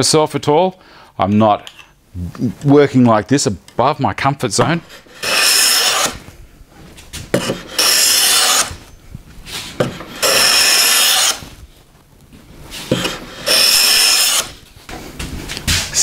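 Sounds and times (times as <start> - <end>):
hand plane rasping on wood: 4.9 - 6.2, 7.4 - 8.7, 9.8 - 11.4, 12.9 - 14.6.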